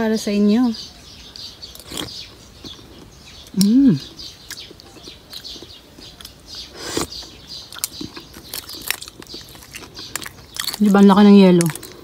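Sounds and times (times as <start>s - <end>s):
birds chirping faintly: 0.0s - 12.0s
ice crunching between teeth: 7.8s - 12.0s.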